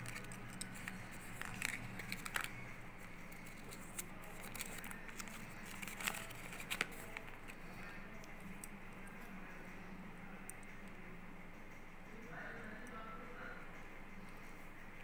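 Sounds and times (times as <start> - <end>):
paper leaflet rustling: 0.0 - 2.6, 3.3 - 7.6.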